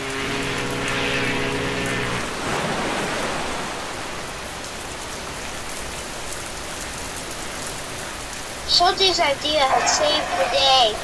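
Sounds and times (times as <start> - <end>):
ship's horn blast: 0.0 - 2.8
heavy rain: 0.0 - 11.0.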